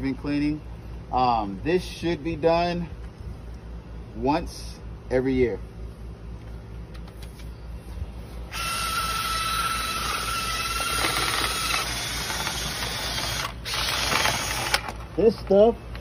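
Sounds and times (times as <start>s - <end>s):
cordless drill whining: 8.5s - 15.0s.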